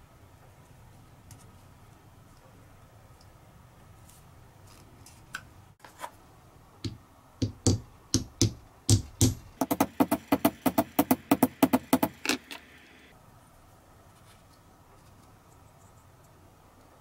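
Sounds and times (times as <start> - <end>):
hammer tapping wood on anvil: 6.8 - 12.2.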